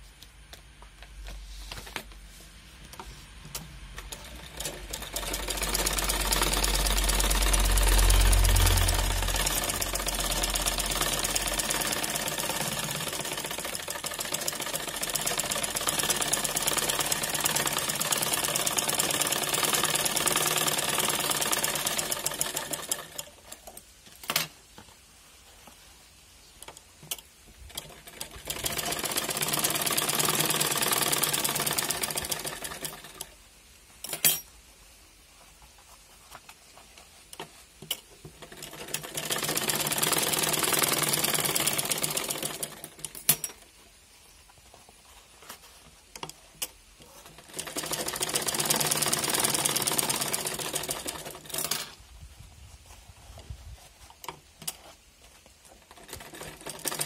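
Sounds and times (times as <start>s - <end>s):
small machine rhythmic clatter: 4.0s - 23.7s, 27.1s - 33.4s, 37.9s - 43.6s, 47.0s - 51.9s, 55.8s - 57.0s.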